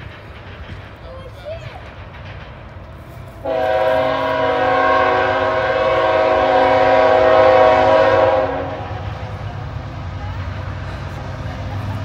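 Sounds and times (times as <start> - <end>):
locomotive air horn blast: 3.4 - 9.1.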